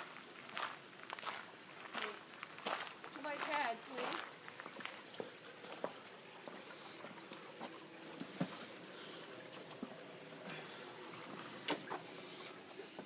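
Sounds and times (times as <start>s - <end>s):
footsteps on stone: 0.0s - 6.0s
sliding glass door opening: 11.0s - 12.6s.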